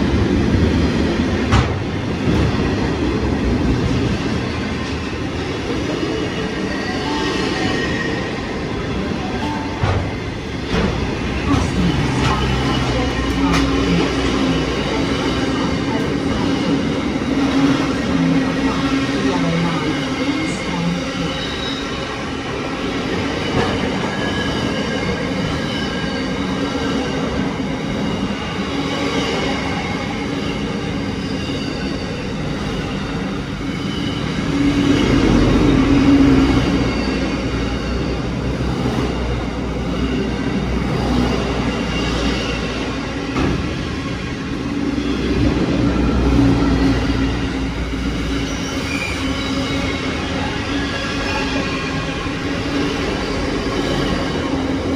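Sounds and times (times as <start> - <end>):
train wheels rumbling on rails: 0.0 - 54.9
high wheel squeal: 46.8 - 54.6.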